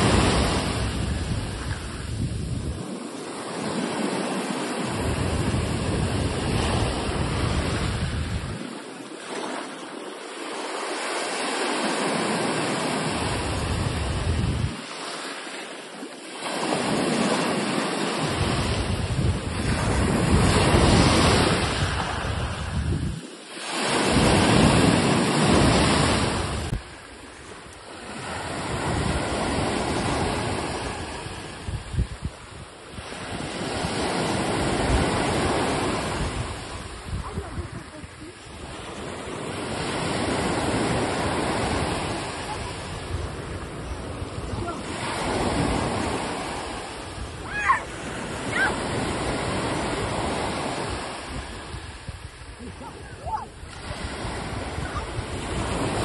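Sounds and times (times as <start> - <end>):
wind rumble on microphone: 0.0 - 11.1, 11.7 - 15.1, 16.1 - 56.0
sea waves breaking: 0.0 - 56.0.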